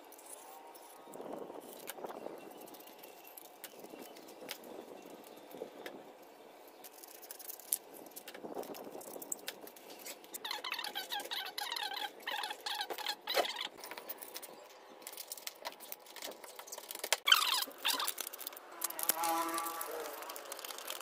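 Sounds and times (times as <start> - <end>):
foam squeaking: 17.2 - 21.0.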